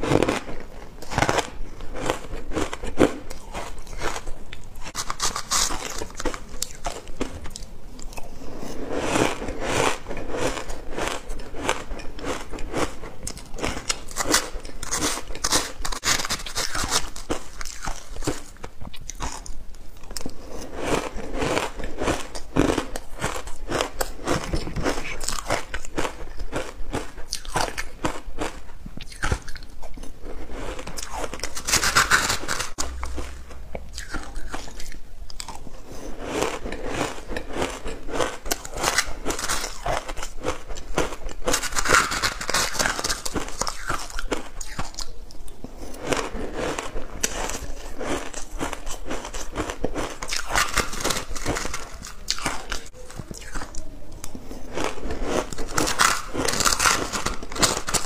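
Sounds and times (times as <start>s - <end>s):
person crunching ice: 0.0s - 7.6s, 8.6s - 19.5s, 20.2s - 29.7s, 30.3s - 45.1s, 46.0s - 53.8s, 54.8s - 58.0s.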